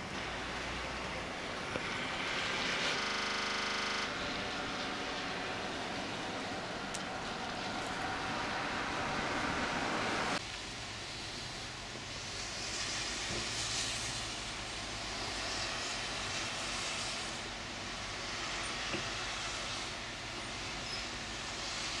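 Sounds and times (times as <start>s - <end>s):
wet snow falling through trees: 0.0s - 22.0s
wind gusts: 4.1s - 10.5s.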